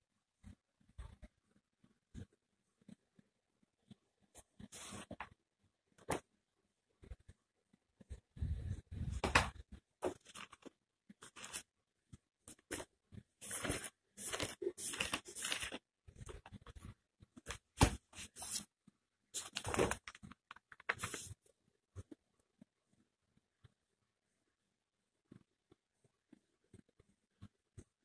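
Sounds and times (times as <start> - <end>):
scratchy handling rustling: 10.0 - 21.4.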